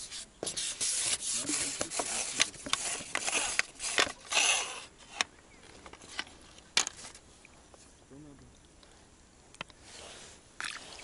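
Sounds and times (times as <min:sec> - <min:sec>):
handling rustling and knocks: 0:05.1 - 0:08.0.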